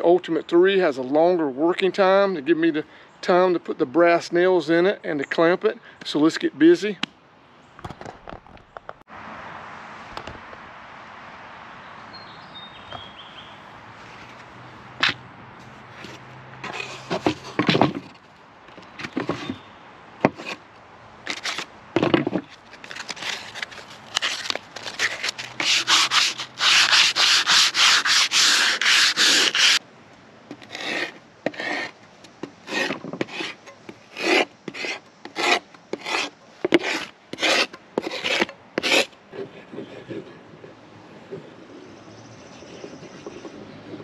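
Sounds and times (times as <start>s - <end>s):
sandpaper sanding plywood: 24.2s - 29.8s, 30.6s - 31.9s, 32.6s - 40.3s.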